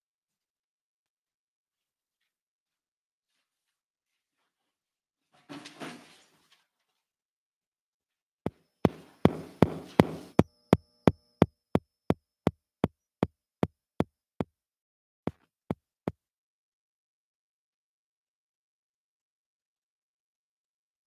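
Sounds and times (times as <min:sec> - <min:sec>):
sharp knocks: 0:08.9 - 0:10.5.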